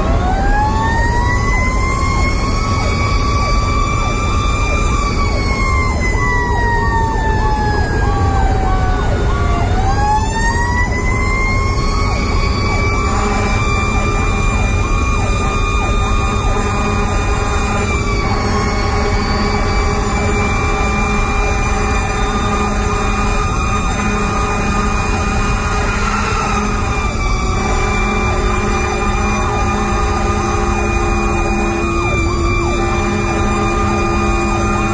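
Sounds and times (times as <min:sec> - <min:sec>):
fire engine siren wailing: 0:00.0 - 0:34.9
heavy diesel engine: 0:00.0 - 0:34.9
road noise: 0:00.0 - 0:34.9.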